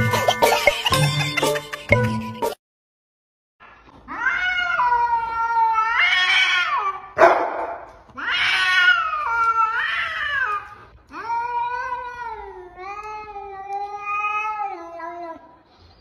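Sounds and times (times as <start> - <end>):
cat yowling: 4.1 - 7.2, 8.2 - 10.6.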